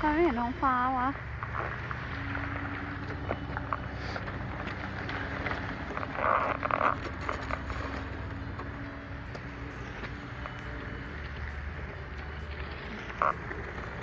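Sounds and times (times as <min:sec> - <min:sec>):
street noise rumble: 0:00.0 - 0:14.0
rustling scrape: 0:04.0 - 0:08.3.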